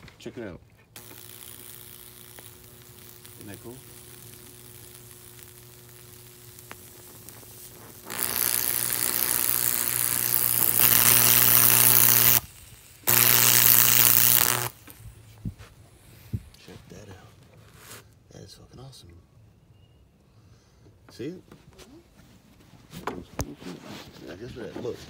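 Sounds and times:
electrical arc crackling and buzzing: 1.0 - 15.5
steady hum: 1.0 - 15.6.

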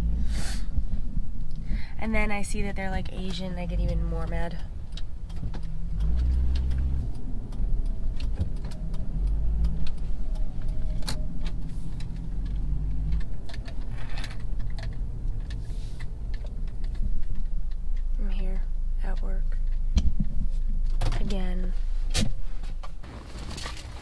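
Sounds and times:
engine and road rumble: 0.0 - 24.0
light clicks and rattles: 2.6 - 21.6.

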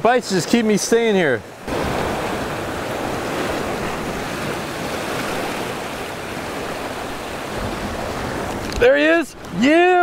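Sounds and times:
ocean surf against rocks: 0.0 - 10.0
wind on microphone: 1.7 - 9.6.

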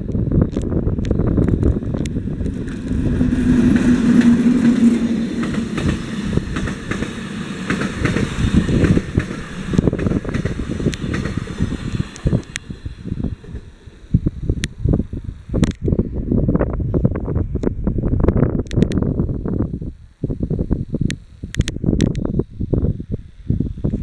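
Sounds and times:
electric locomotive hum: 0.0 - 24.0
train coaches rumbling past: 1.1 - 14.4.

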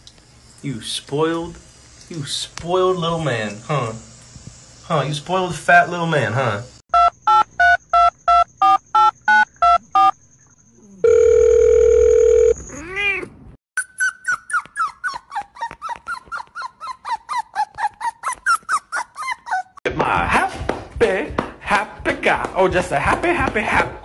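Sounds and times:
dial tone hum: 11.0 - 12.6
puppy whimpering: 12.7 - 19.8.

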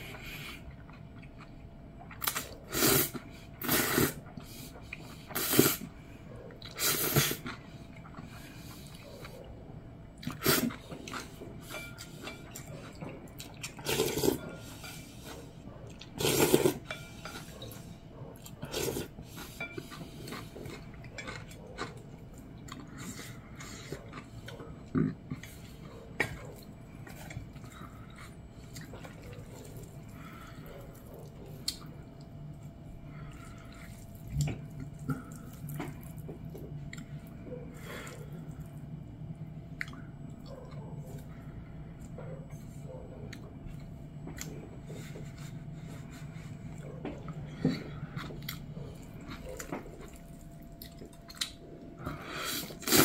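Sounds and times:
person slurping noodles: 2.3 - 4.2, 5.3 - 5.9, 6.7 - 7.6, 10.3 - 10.8, 13.8 - 14.7, 16.2 - 16.8, 18.7 - 20.0, 52.1 - 53.0
wet chewing: 10.2 - 38.8, 39.7 - 53.0.

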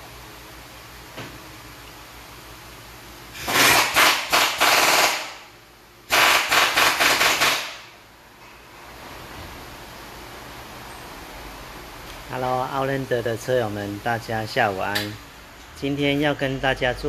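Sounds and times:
pneumatic impact wrench rattling: 3.3 - 5.5, 6.1 - 7.9.

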